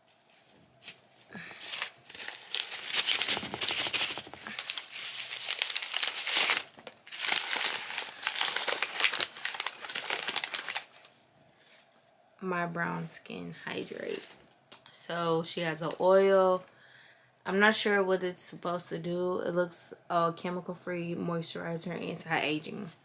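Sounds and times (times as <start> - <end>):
paper crinkling and tearing: 0.0 - 11.1.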